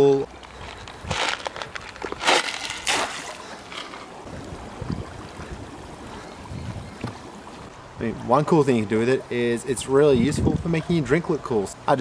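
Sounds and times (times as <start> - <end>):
dry ice splashing into pool: 1.4 - 3.5.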